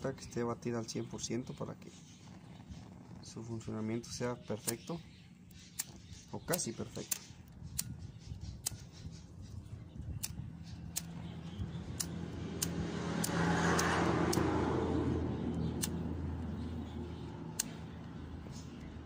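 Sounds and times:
lighter spark wheel clicking: 4.6 - 14.6, 15.5 - 16.1, 16.8 - 18.8
passing vehicle engine: 10.6 - 19.0.

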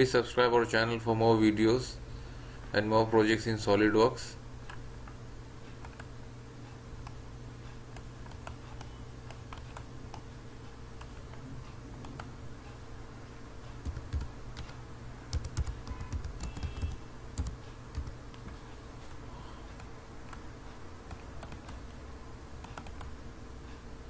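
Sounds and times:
steady low hum: 0.0 - 24.0
computer keyboard typing: 5.8 - 6.1, 7.9 - 10.3, 13.7 - 18.6, 21.1 - 22.0, 22.6 - 23.1.

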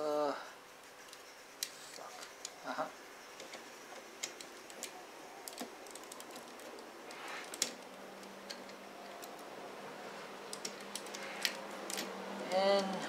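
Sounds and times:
plastic parts clicking together: 3.4 - 9.5, 10.5 - 12.1.

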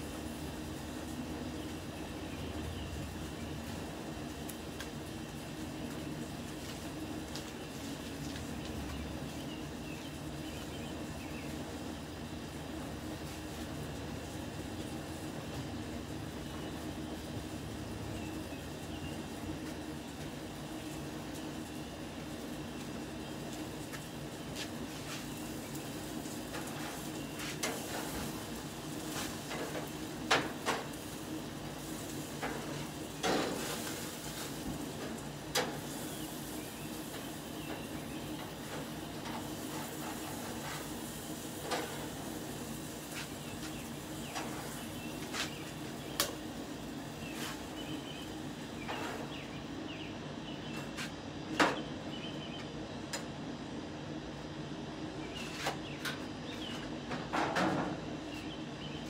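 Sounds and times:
steady low hum: 0.0 - 59.0
utensils clanking on grill: 26.5 - 45.6.

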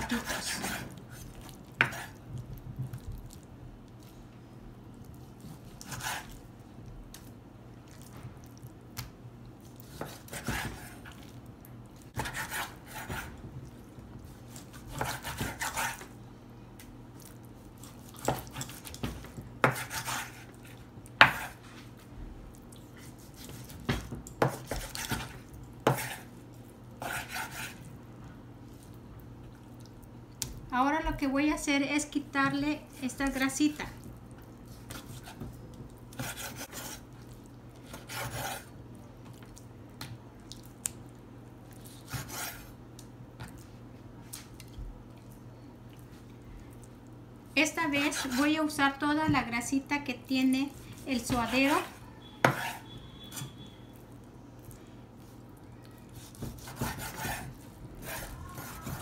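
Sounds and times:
knife scraping: 0.0 - 2.2, 5.4 - 6.4, 12.1 - 13.4, 14.5 - 16.1, 19.6 - 21.8, 24.4 - 26.3, 27.0 - 27.8, 34.7 - 35.5, 36.1 - 37.1, 37.8 - 38.7, 41.9 - 42.7, 47.9 - 48.6, 51.0 - 53.8, 56.2 - 59.0.

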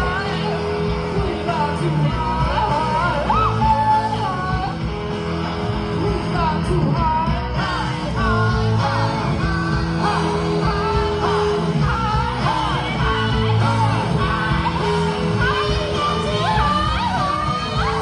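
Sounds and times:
rock band playing: 0.0 - 18.0
woman singing: 6.3 - 18.0.

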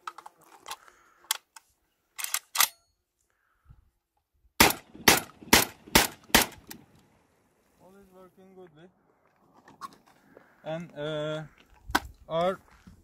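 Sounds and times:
gun handling clicks: 0.1 - 2.8
shotgun shots: 4.6 - 6.8.

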